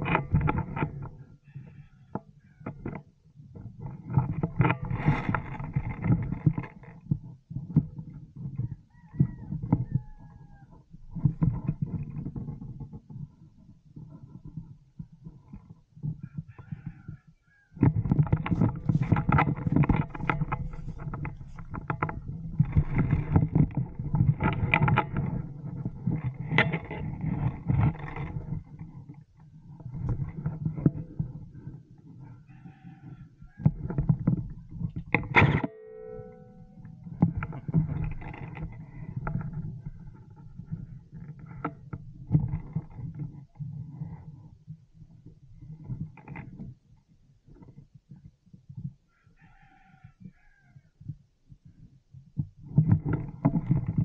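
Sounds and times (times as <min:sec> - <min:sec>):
handling noise on microphone: 0:00.0 - 0:49.0, 0:49.6 - 0:54.0.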